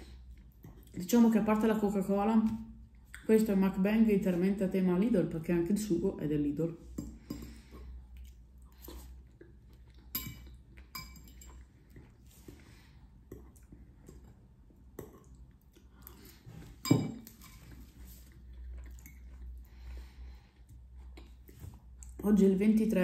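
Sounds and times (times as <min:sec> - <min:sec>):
chewing pasta: 0:00.0 - 0:01.1, 0:07.6 - 0:16.5, 0:17.3 - 0:22.2.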